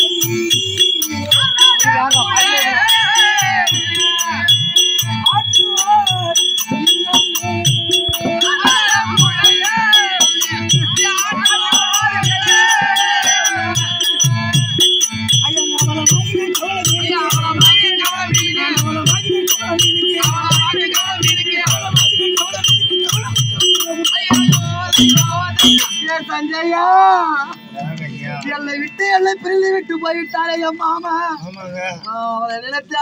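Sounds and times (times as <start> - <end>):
drum beating: 0.0 - 26.2
steady high ringing: 0.0 - 27.5
man singing: 0.0 - 33.0.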